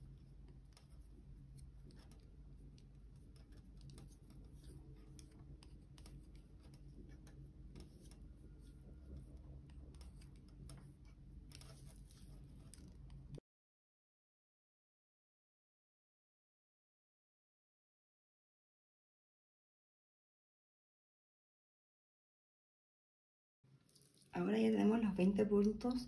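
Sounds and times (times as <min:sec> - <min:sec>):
low steady hum: 0:00.0 - 0:13.4, 0:23.8 - 0:26.0
wooden knitting needles clicking: 0:00.0 - 0:13.4.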